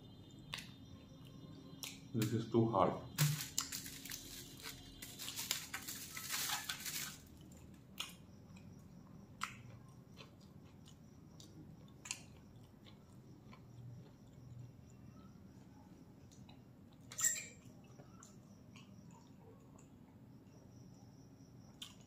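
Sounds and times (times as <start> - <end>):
aluminium foil crinkling: 3.2 - 7.5
quiet chewing: 7.4 - 20.3, 21.7 - 22.0.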